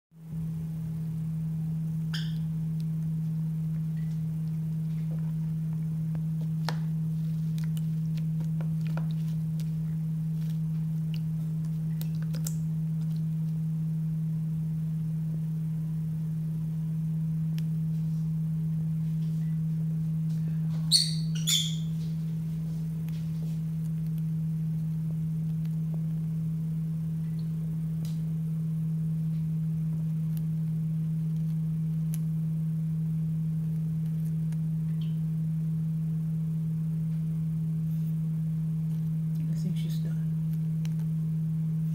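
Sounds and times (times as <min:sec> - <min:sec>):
steady low hum: 0:00.2 - 0:41.9
bird chirping: 0:02.1 - 0:02.5, 0:20.8 - 0:22.0.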